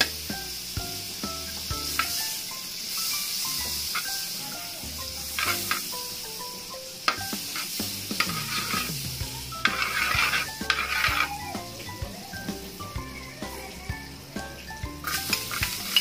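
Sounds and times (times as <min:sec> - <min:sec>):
oil sizzling in a wok: 0:00.0 - 0:16.0
spatula clinking on metal: 0:01.4 - 0:02.4, 0:03.6 - 0:04.3, 0:05.3 - 0:06.0, 0:07.1 - 0:09.0, 0:09.6 - 0:11.4, 0:15.0 - 0:16.0
metal spatula scraping pan: 0:05.3 - 0:05.9, 0:07.1 - 0:11.4, 0:15.0 - 0:16.0.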